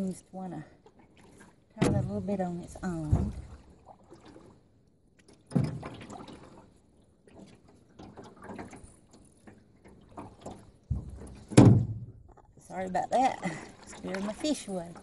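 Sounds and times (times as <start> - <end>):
knocks against boat hull: 10.9 - 12.2.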